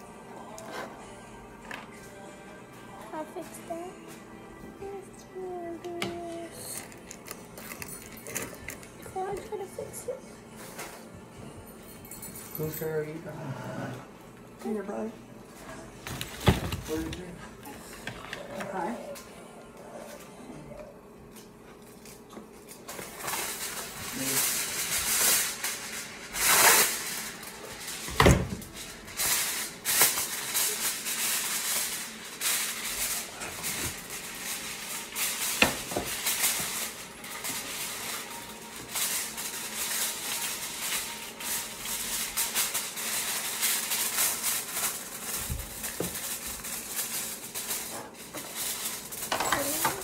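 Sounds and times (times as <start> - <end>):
plastic packaging crinkling: 21.8 - 50.0.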